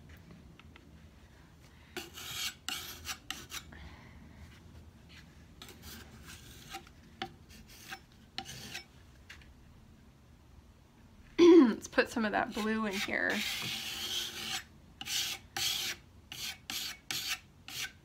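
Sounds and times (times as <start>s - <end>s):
putty knife scraping paint: 2.0s - 3.7s, 5.6s - 8.9s, 12.4s - 18.0s.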